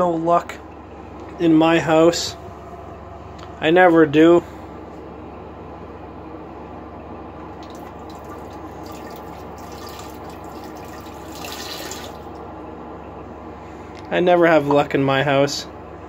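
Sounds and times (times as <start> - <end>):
steady background hum: 0.0 - 16.0
water trickling and dripping: 7.6 - 12.4.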